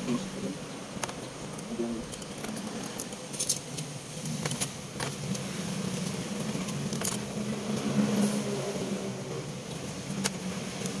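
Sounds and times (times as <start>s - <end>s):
metal clinks of small parts: 2.1s - 3.8s.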